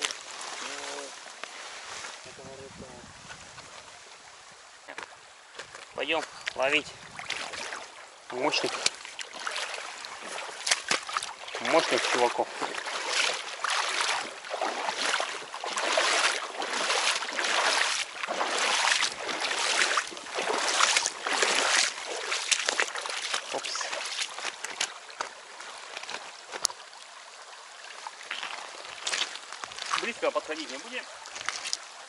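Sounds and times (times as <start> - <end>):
footsteps wading through water: 0.0 - 2.3, 3.2 - 32.0
river rushing: 3.8 - 27.1.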